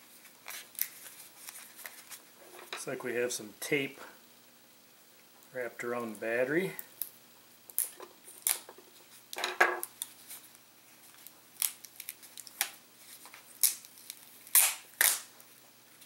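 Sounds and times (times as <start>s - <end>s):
adhesive tape ripping: 7.7s - 8.7s, 11.2s - 15.4s.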